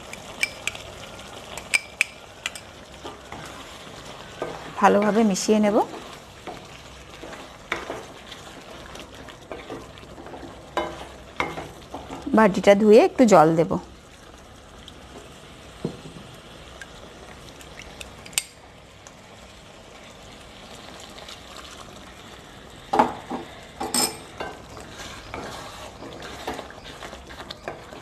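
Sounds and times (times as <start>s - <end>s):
curry sizzling: 0.0s - 28.0s
spatula knocking and scraping pan: 4.4s - 8.2s, 9.4s - 12.3s, 23.0s - 28.0s.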